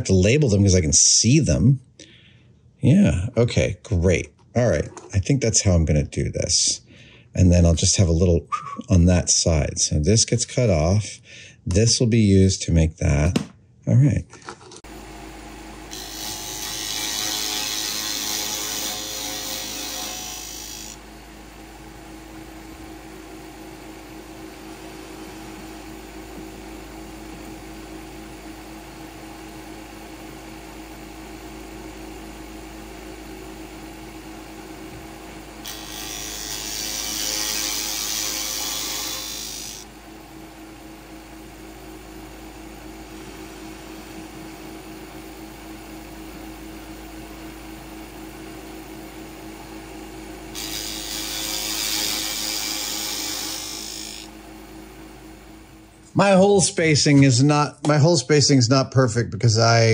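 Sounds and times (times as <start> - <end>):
milling machine spindle humming: 14.9 - 45.9, 47.7 - 56.1
cutter boring into wood: 15.9 - 21.0, 35.6 - 39.9, 50.5 - 54.3.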